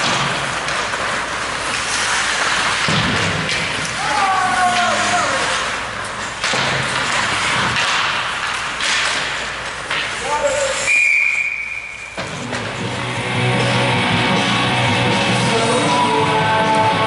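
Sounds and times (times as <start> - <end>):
noisy rink background: 0.0 - 17.0
skates sticks and puck knocking: 0.0 - 17.0
referee's whistle blast: 10.8 - 12.2.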